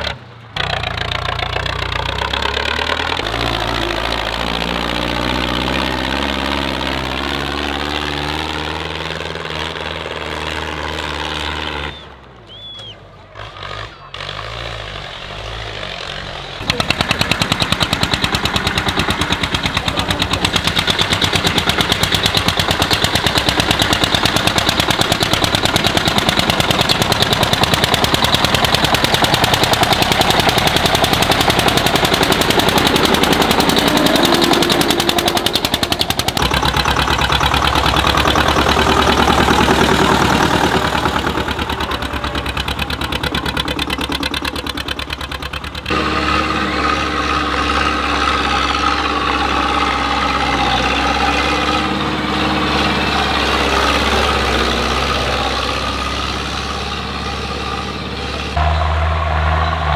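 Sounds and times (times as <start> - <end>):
tractor diesel engines under load: 0.0 - 59.9.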